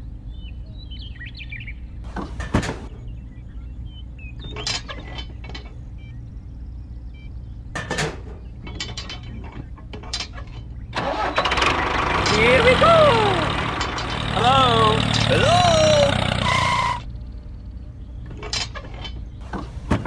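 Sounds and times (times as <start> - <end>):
steady low hum: 5.2 - 11.0, 13.6 - 18.5.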